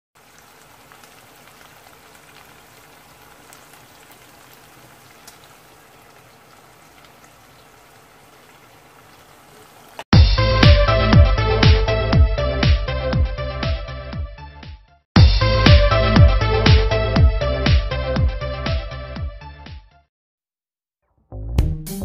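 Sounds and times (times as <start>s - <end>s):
food sizzling in oil: 0.2s - 10.1s
electronic music with thumping beat: 10.2s - 14.3s, 15.2s - 19.8s, 21.6s - 22.0s.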